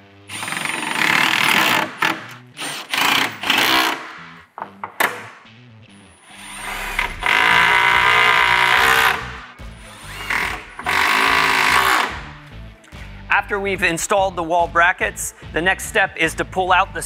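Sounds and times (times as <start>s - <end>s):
impact driver hammering screws: 0.3s - 4.1s, 7.0s - 12.2s.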